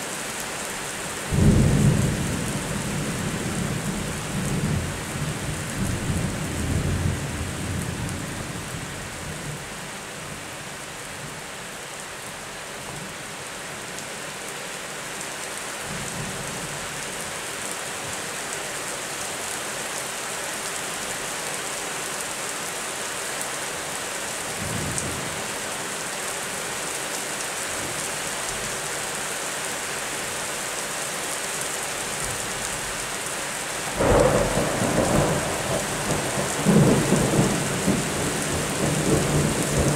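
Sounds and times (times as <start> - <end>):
steady rain falling: 0.0 - 39.9
loud thunderclap: 34.0 - 38.0
thunder rumbling: 34.0 - 39.9.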